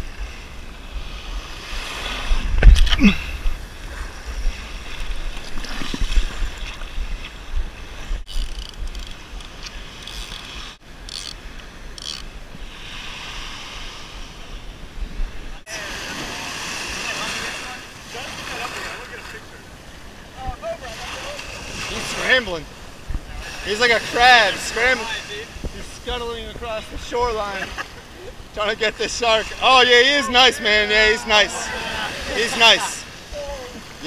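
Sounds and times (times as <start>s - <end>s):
surf on the shore: 0.0s - 8.3s, 9.1s - 34.0s
wind buffeting microphone: 0.0s - 10.6s, 22.7s - 28.5s.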